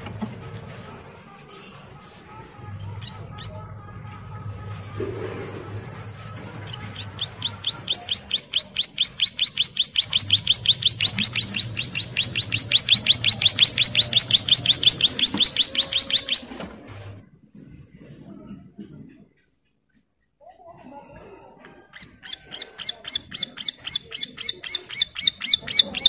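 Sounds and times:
bird chirping fast series: 0:06.6 - 0:16.6, 0:22.0 - 0:26.0.

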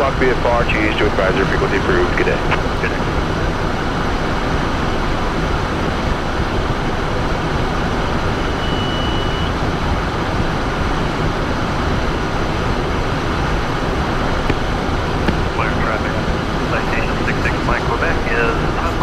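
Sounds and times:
jet cockpit engine and airflow: 0:00.0 - 0:19.0
high steady tone: 0:07.2 - 0:09.7.

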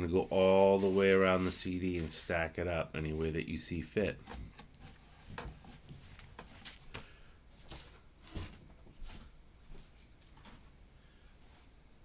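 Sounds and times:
soft handling taps and rustles: 0:04.1 - 0:10.7.

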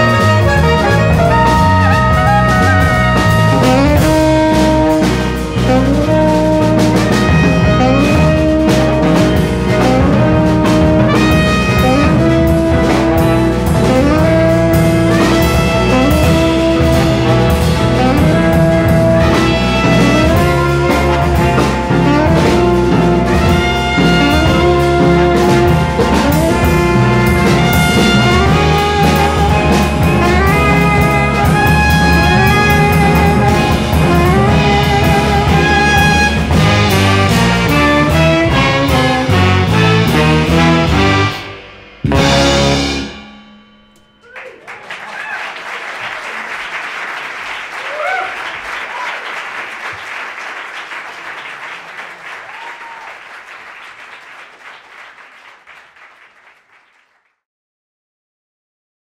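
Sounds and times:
jazz ensemble with horns and strings: 0:00.0 - 0:44.2
audience cheering: 0:01.0 - 0:03.8, 0:44.2 - 0:57.1
audience applauding: 0:44.2 - 0:57.3.

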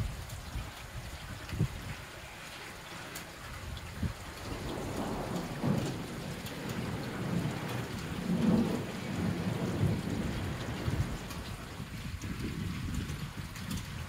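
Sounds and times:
steady rainfall: 0:00.0 - 0:14.0
rolling thunder: 0:03.7 - 0:14.0.

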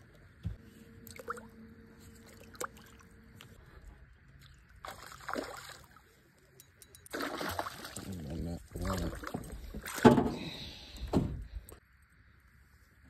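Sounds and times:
fish splashing in water: 0:04.8 - 0:06.0, 0:07.1 - 0:08.1.

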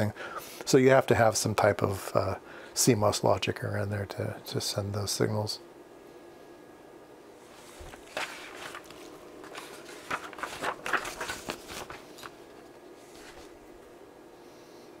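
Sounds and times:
paper rustling and crinkling: 0:07.5 - 0:13.8.

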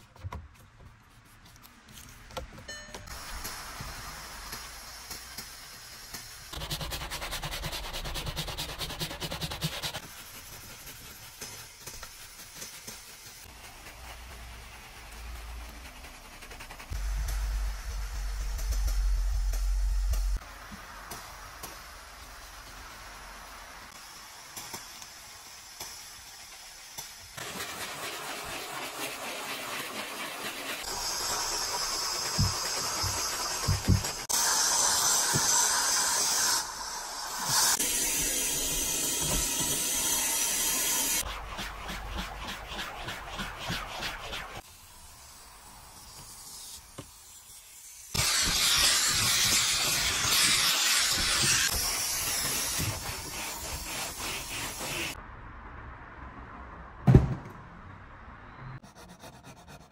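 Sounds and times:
brush scrubbing plastic dashboard: 0:06.5 - 0:17.6, 0:27.4 - 0:34.3, 0:41.2 - 0:44.6, 0:48.2 - 0:55.2.

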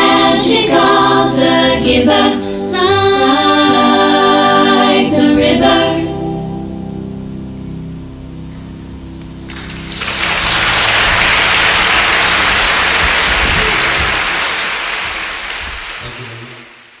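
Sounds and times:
held music chord: 0:00.0 - 0:14.5
audience applause: 0:09.5 - 0:17.0.

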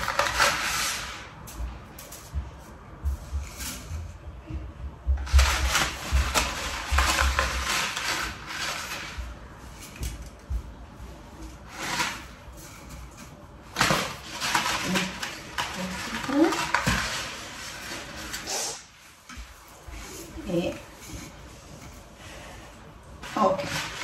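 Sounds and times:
dry spaghetti rattling in box: 0:00.0 - 0:01.3, 0:05.2 - 0:10.5, 0:11.5 - 0:18.6.

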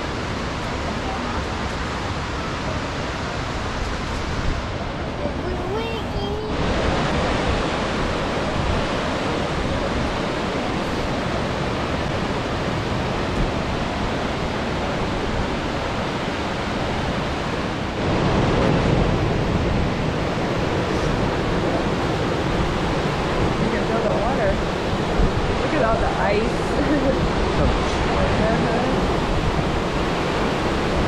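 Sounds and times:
waterfall and rapids rushing: 0:00.0 - 0:31.0.

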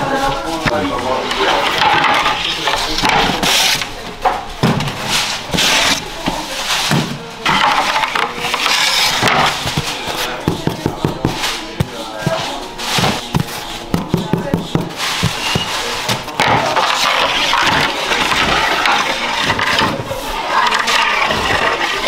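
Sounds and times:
wooden peel scraping oven floor: 0:00.0 - 0:04.0, 0:04.6 - 0:22.0
loaves knocking into wooden crate: 0:06.9 - 0:22.0.

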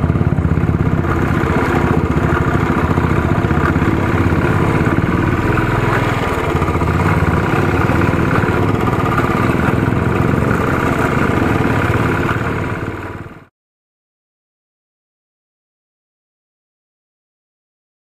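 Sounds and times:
motorcycle engine running: 0:00.0 - 0:13.5.

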